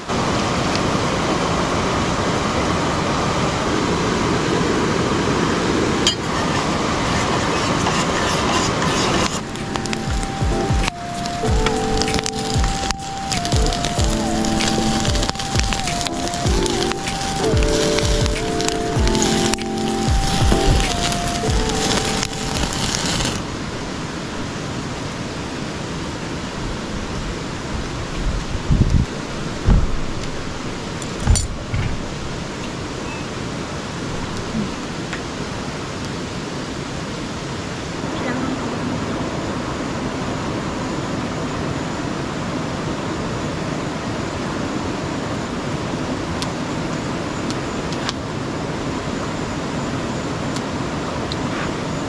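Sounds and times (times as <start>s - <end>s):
steady rushing hiss: 0.0s - 52.0s
wood fire crackling: 7.9s - 23.5s
meat sizzling on a grill: 12.7s - 23.4s.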